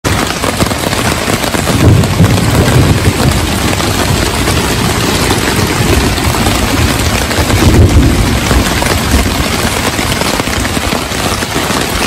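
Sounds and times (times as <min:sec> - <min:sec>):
heavy rain on a tarp: 0:00.0 - 0:12.0
low rumble: 0:01.8 - 0:10.7.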